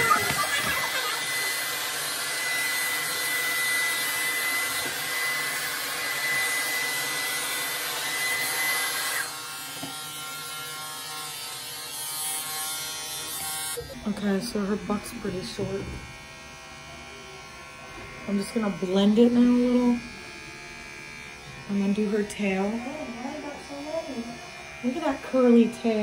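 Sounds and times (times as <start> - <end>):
blow dryer whining: 0.0 - 10.9
electric clipper buzzing: 0.0 - 26.0.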